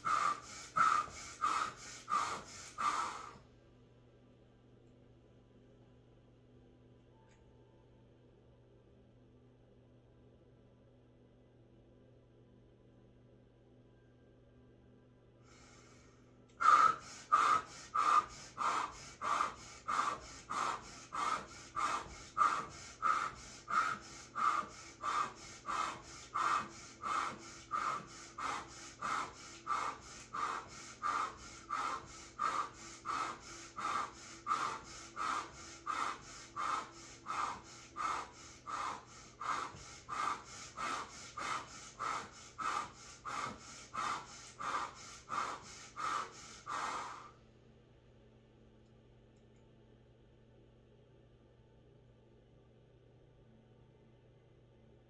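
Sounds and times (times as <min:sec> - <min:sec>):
woman breathing forcefully: 0:00.0 - 0:03.4, 0:15.4 - 0:47.4.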